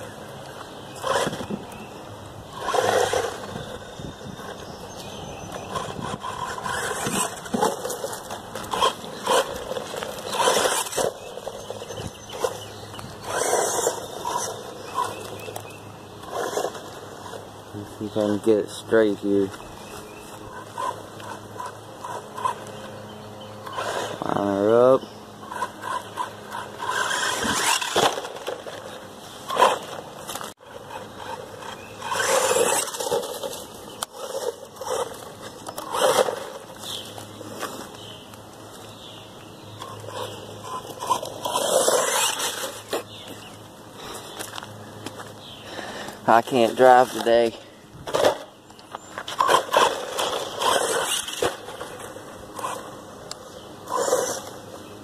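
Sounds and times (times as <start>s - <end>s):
tyres scraping and crunching on dirt: 0.0s - 55.0s.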